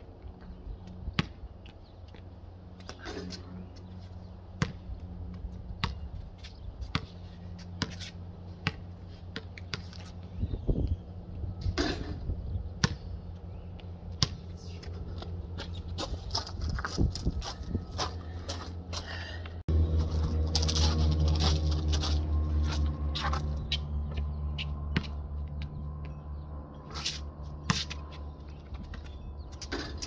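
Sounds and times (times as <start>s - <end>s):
steady low hum: 0.0s - 30.0s
basketball bouncing on concrete: 1.1s - 2.2s, 4.6s - 6.0s, 6.9s - 10.0s, 12.8s - 13.1s, 13.8s - 14.6s, 24.9s - 26.2s.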